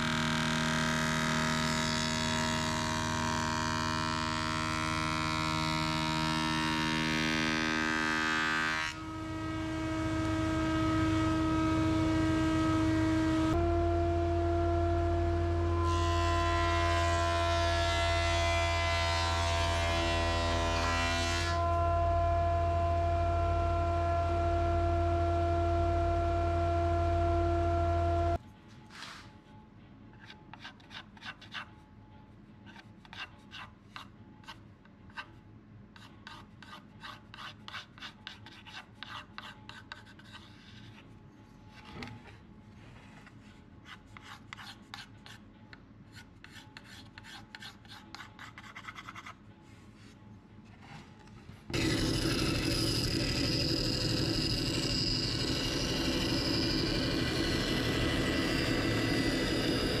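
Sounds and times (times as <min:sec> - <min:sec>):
band saw running: 0:51.7 - 1:00.0.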